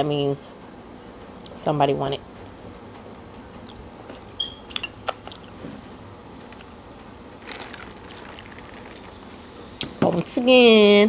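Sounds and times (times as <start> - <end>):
soda pouring over ice: 7.4 - 9.3.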